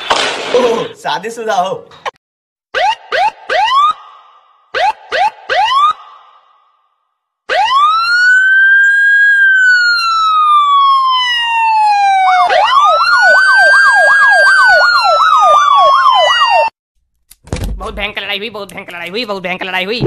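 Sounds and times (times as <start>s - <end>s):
fast yelping siren: 2.7s - 6.4s, 7.5s - 16.7s
wailing siren: 2.7s - 6.4s, 7.5s - 16.7s.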